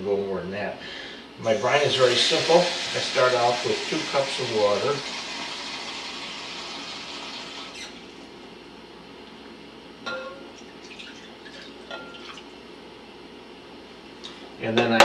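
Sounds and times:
glass clinking: 0:10.1 - 0:12.4
water pouring into glass bowl: 0:10.8 - 0:12.4.

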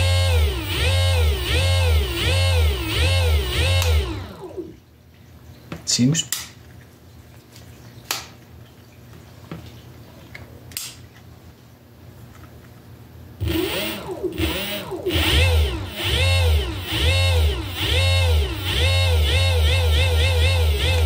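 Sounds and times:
electric motor whine rising and falling: 0:00.0 - 0:04.8, 0:13.4 - 0:21.0.

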